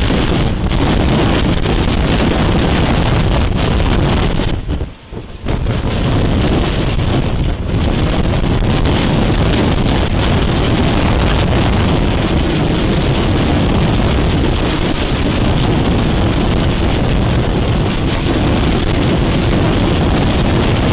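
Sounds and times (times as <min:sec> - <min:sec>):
wind blowing on microphone: 0:00.0 - 0:20.9.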